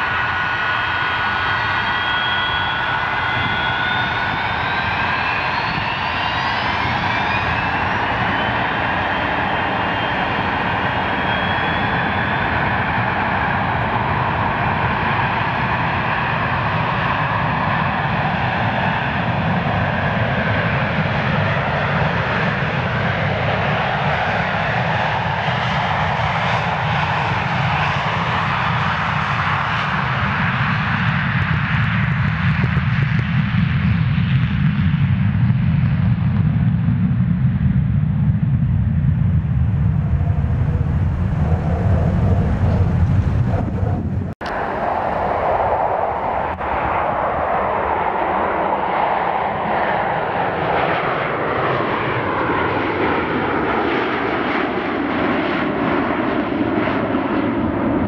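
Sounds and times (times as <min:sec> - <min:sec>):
deep low jet rumble: 0:00.0 - 0:17.7, 0:32.1 - 0:50.8
jet engine noise: 0:00.0 - 0:58.0.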